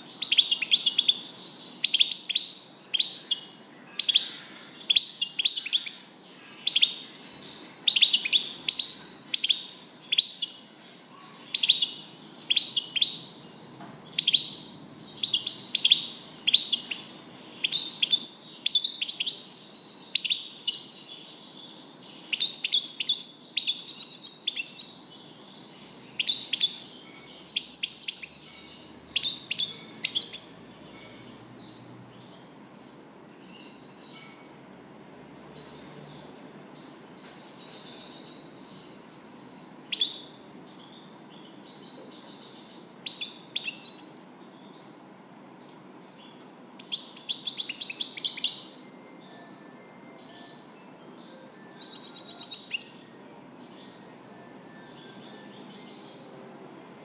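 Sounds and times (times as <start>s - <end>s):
goldfinch twittering song: 0.0s - 32.4s, 46.1s - 49.5s, 50.2s - 57.0s.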